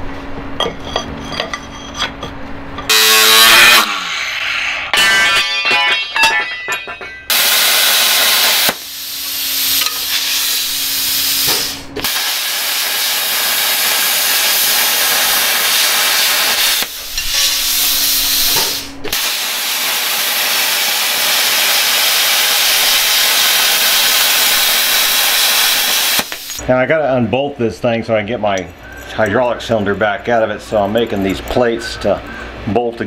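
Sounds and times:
low steady hum: 0.0 - 8.0, 26.3 - 33.0
plasma cutter hissing: 2.9 - 6.4, 7.3 - 26.6.

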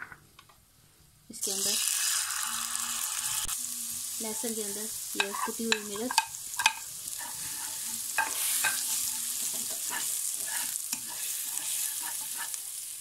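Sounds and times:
garlic sizzling in oil: 1.3 - 13.0
spatula tapping a pan: 5.2 - 6.9, 8.1 - 12.5
spatula scraping a wok: 5.2 - 13.0.

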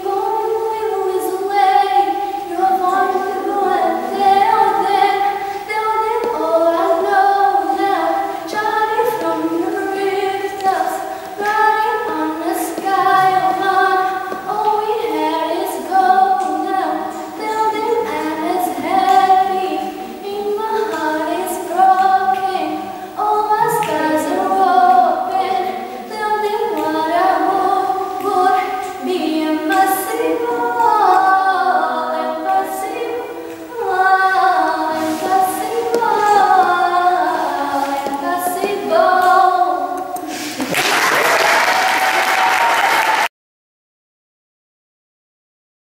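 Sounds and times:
girl singing unaccompanied: 0.0 - 40.6
applause: 40.6 - 43.3.

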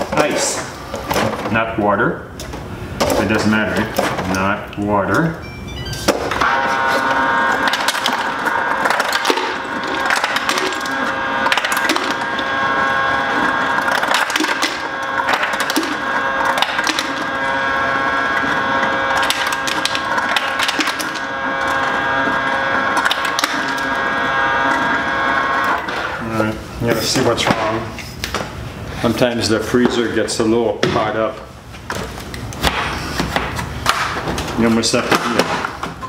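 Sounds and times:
ice dispenser motor hum: 6.3 - 27.8.

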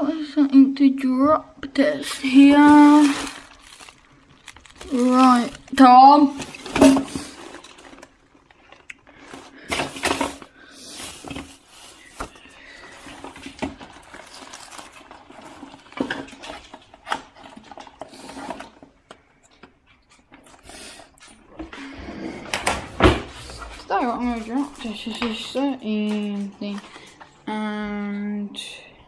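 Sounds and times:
small objects clattering in drawer: 2.3 - 18.8.

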